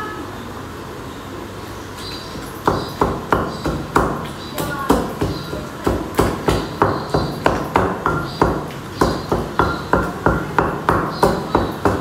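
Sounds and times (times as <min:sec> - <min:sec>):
pestle pounding in stone mortar: 0:02.4 - 0:12.0.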